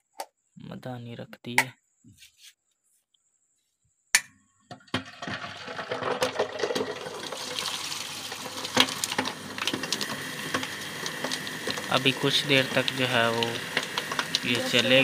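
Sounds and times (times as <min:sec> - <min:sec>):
butter churn motor running: 0:06.8 - 0:15.0.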